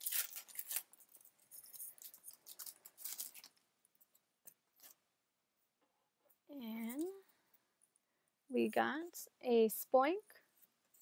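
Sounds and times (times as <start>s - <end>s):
foil wrapper crinkling: 0.0s - 3.6s.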